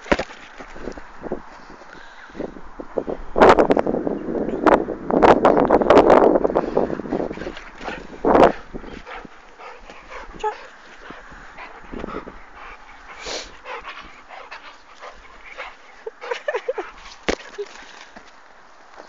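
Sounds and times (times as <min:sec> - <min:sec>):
small dog panting: 0:06.7 - 0:17.1.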